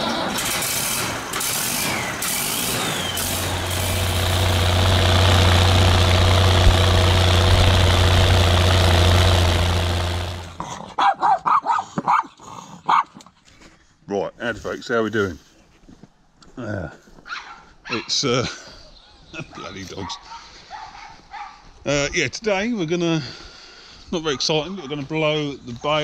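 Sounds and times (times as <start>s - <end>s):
diesel tractor engine running: 0.0s - 10.6s
dogs barking: 10.6s - 13.2s, 19.5s - 21.7s.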